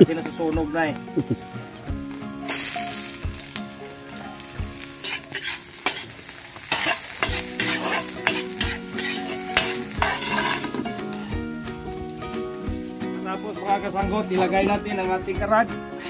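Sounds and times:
garlic sizzling in oil: 0:00.0 - 0:16.0
spatula scraping and clinking on wok: 0:04.3 - 0:11.2.

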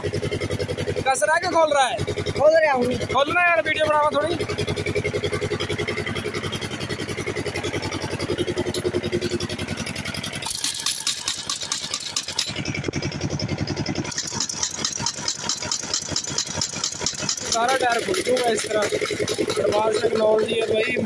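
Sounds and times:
impact wrench rattling: 0:00.0 - 0:21.0
steady motor running: 0:00.0 - 0:21.0.

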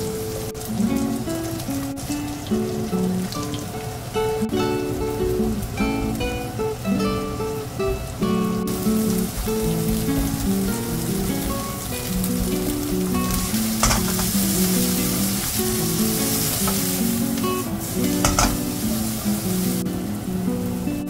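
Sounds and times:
acoustic guitar music: 0:00.0 - 0:21.0
food sizzling in wok: 0:00.0 - 0:21.0
spatula scraping pan: 0:10.1 - 0:17.2, 0:18.0 - 0:19.0.

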